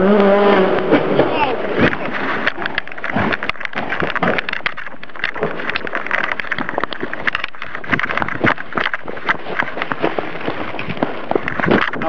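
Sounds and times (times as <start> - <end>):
microphone handling noise: 0.0 - 12.0
footsteps crunching dry leaves: 5.3 - 12.0.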